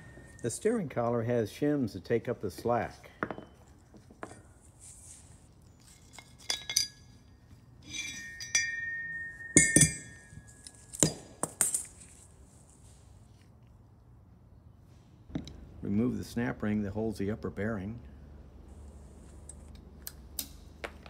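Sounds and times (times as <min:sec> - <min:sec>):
metal clinks and knocks: 0:00.0 - 0:00.8, 0:03.0 - 0:04.6, 0:05.6 - 0:12.3
metal ring ringing: 0:00.0 - 0:01.0, 0:03.1 - 0:04.6, 0:05.6 - 0:12.0.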